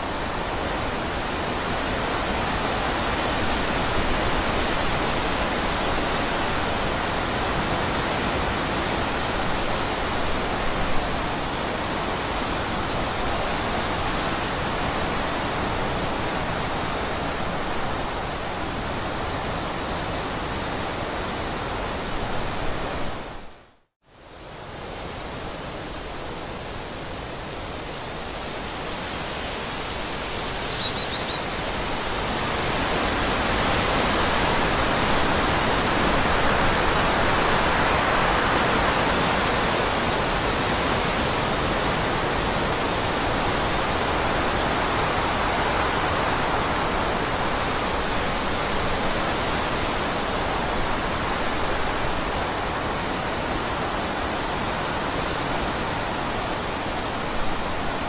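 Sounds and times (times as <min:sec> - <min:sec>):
forest rushing hiss: 0:24.1 - 0:58.0
high bird chirps: 0:25.9 - 0:26.6, 0:30.6 - 0:31.4.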